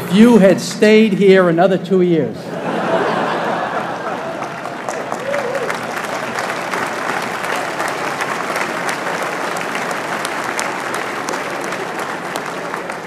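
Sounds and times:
large audience applauding: 0:02.8 - 0:13.0.

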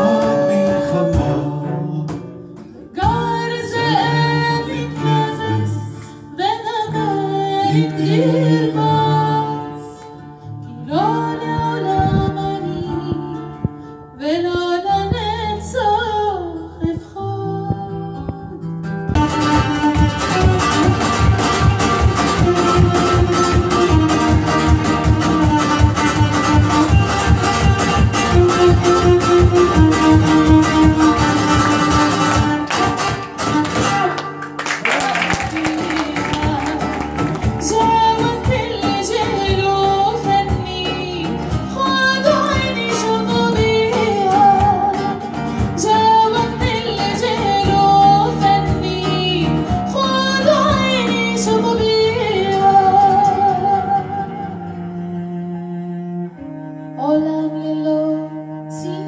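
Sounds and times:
sustained cello notes: 0:00.0 - 0:03.2, 0:49.2 - 0:59.0
woman singing: 0:00.0 - 0:34.2, 0:34.9 - 0:54.7, 0:57.0 - 0:59.0
acoustic guitar strumming: 0:00.0 - 0:56.8
hand drums: 0:17.7 - 0:34.1, 0:34.8 - 0:53.9.

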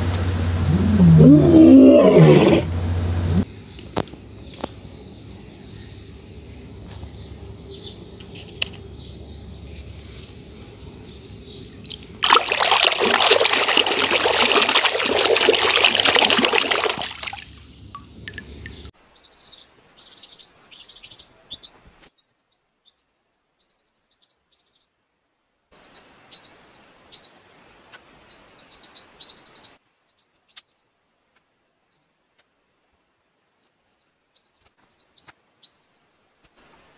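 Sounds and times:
low hum: 0:00.0 - 0:03.5
water running over plastic toys: 0:12.2 - 0:18.8.

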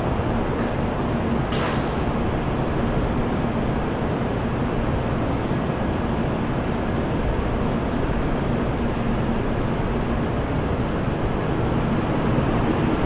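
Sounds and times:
train running noise with hum: 0:00.0 - 0:13.0
short hiss: 0:01.5 - 0:02.2.

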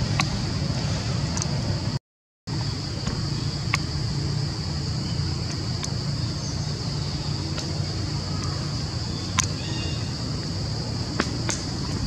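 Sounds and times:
insect drone: 0:00.0 - 0:12.0
faint ticks: 0:09.3 - 0:09.6.

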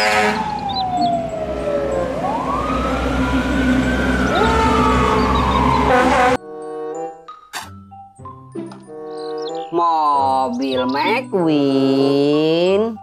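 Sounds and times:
fire engine sirens wailing: 0:00.0 - 0:06.4
truck engines rumbling: 0:00.0 - 0:06.4.

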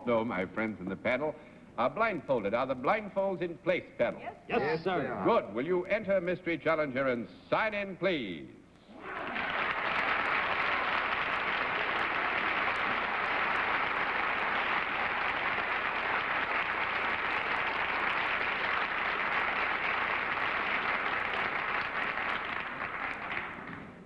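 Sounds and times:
audience applauding: 0:09.0 - 0:24.0.

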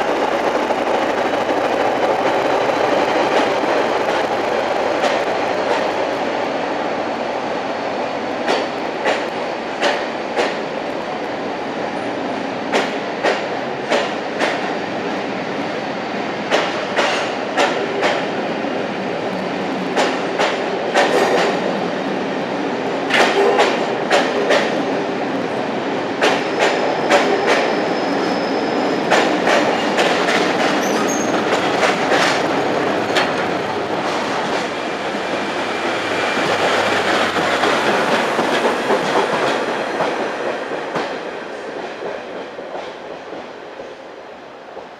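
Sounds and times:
train coaches rumbling: 0:00.0 - 0:44.9
wheel squeal: 0:26.5 - 0:29.0, 0:30.8 - 0:31.4.

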